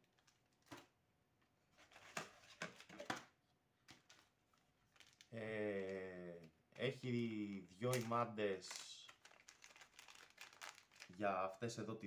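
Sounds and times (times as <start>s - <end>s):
plastic bags rustling: 3.9s - 5.3s, 7.8s - 11.3s.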